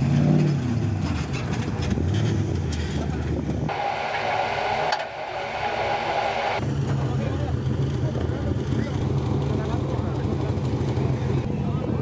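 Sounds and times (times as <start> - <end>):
engine drone with whine: 0.0 - 12.0
truck engine revving: 3.7 - 6.6.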